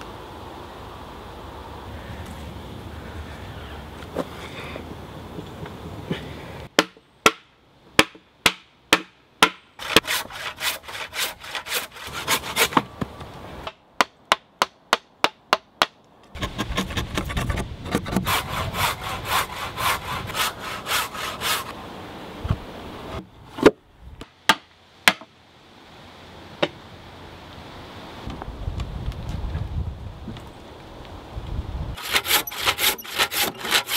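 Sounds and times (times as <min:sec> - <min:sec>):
saw cutting wood: 0:09.8 - 0:12.8, 0:16.4 - 0:21.7, 0:32.0 - 0:33.9.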